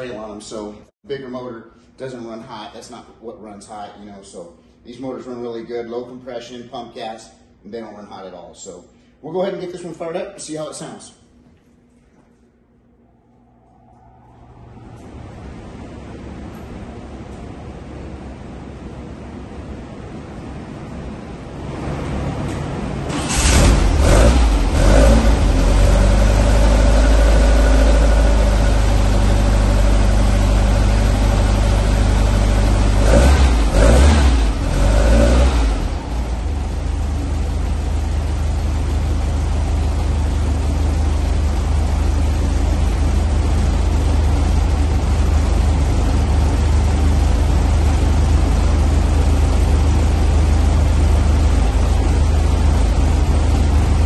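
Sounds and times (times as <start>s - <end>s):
engine revving and idling: 21.4s - 54.0s.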